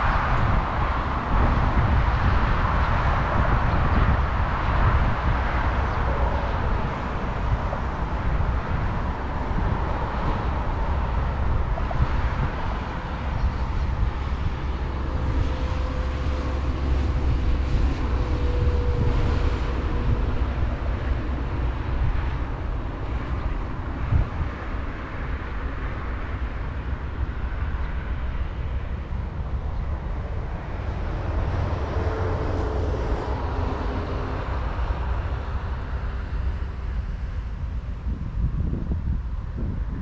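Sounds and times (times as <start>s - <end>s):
low outdoor rumble: 0.0s - 40.0s.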